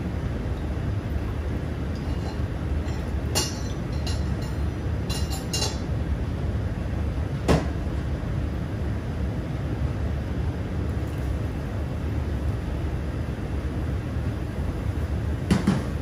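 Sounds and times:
low kitchen rumble: 0.0 - 16.0
glass bottles clinking: 1.9 - 5.9.

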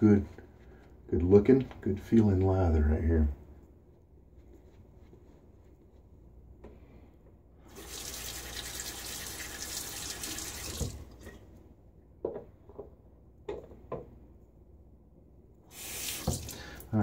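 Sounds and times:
sink tap running: 7.7 - 11.0, 15.7 - 16.8.

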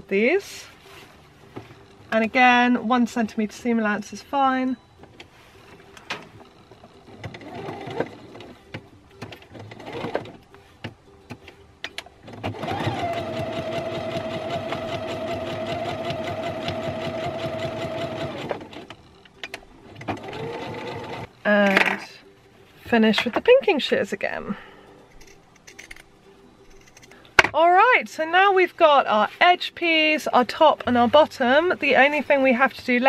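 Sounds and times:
sewing machine stitching: 7.2 - 8.6, 12.3 - 19.0, 19.9 - 21.3.

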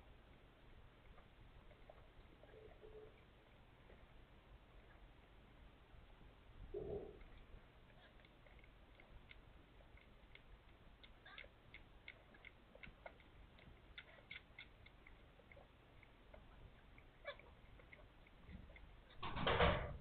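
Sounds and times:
kittens squeaking: 11.0 - 19.2.

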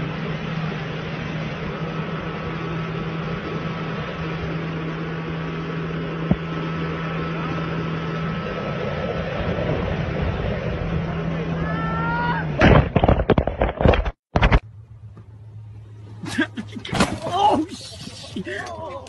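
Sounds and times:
rush of wind and water: 0.0 - 12.6
boat motor droning: 0.0 - 19.0.

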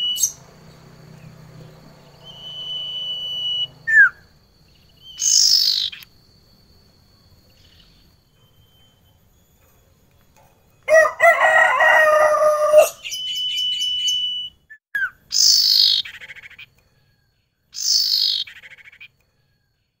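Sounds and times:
bird whistles and trills: 0.0 - 1.3, 2.0 - 6.1, 12.7 - 16.8, 17.8 - 19.2
rooster crowing: 10.9 - 13.2.

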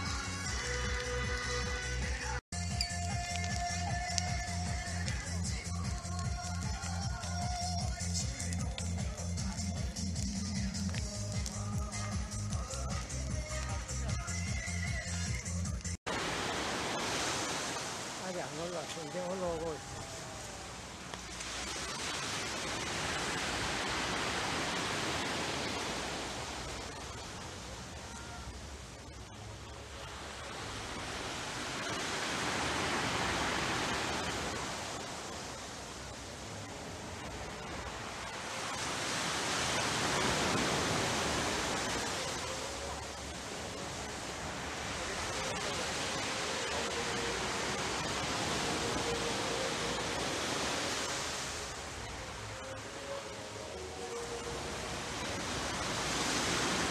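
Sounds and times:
wave washing up a beach: 3.1 - 56.9
surf breaking on rocky shore: 16.1 - 56.9.

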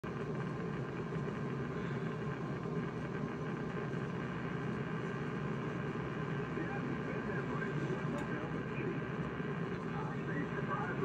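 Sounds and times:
radio static: 6.4 - 11.0.

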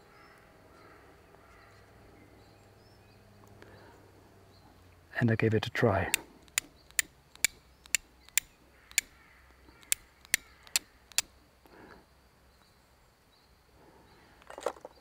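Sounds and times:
fire striker scraping on flint: 6.1 - 9.1, 9.8 - 11.3.

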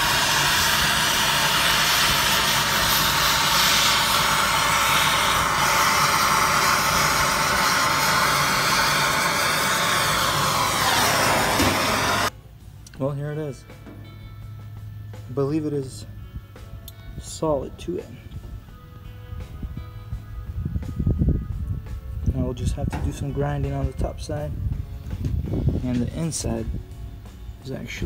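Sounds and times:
torch flame hissing: 0.0 - 12.3.

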